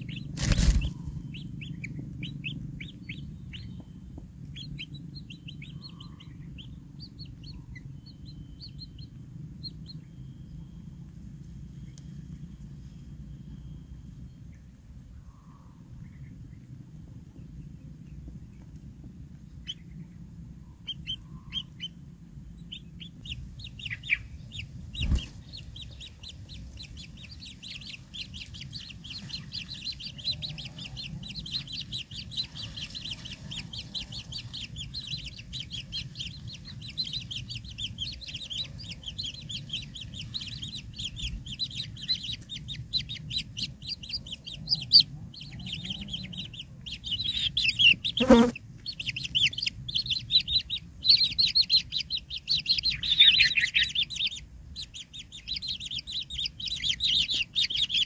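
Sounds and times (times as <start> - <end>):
nestlings chittering: 0.0 - 10.0, 22.6 - 58.0
rustling: 0.3 - 1.2.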